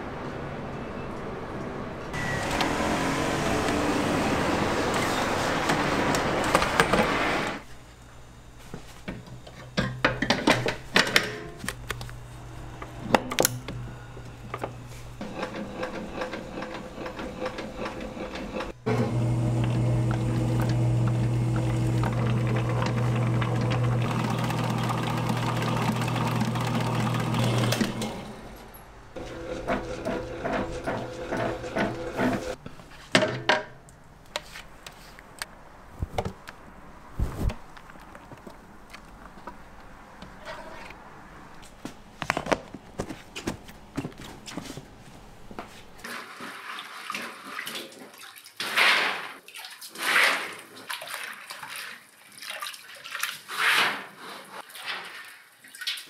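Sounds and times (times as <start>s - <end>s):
stand mixer motor hum: 15.2s - 28.4s, 29.2s - 32.6s.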